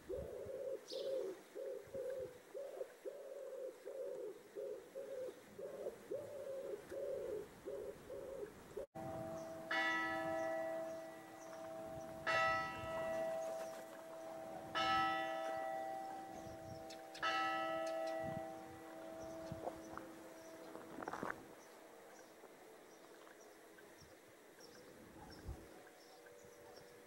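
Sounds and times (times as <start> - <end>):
pigeon cooing: 0.0 - 8.9
church bell striking: 9.0 - 21.0.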